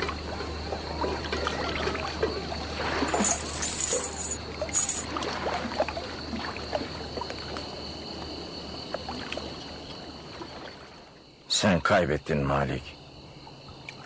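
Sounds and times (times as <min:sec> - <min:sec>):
metallic jingle: 0:03.2 - 0:05.1.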